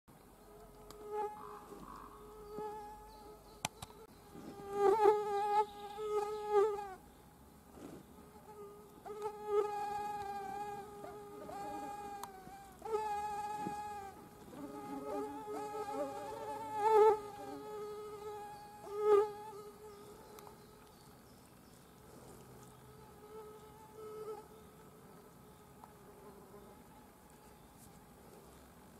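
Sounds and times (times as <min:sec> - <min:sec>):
mosquito buzzing: 0:00.9 - 0:07.0, 0:08.3 - 0:20.0.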